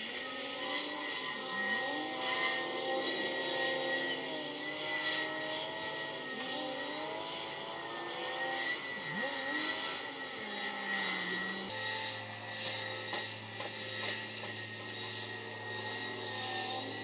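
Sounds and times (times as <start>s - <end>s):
steady high whine: 0.0s - 17.0s.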